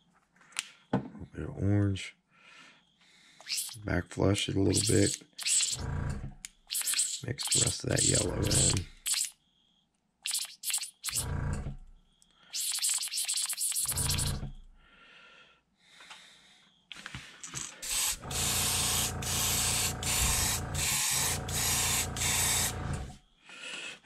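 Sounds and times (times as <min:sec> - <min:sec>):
airbrush hissing: 0:03.4 - 0:03.8, 0:04.7 - 0:05.8, 0:06.7 - 0:09.3, 0:10.2 - 0:11.3, 0:12.5 - 0:14.4, 0:17.8 - 0:23.0.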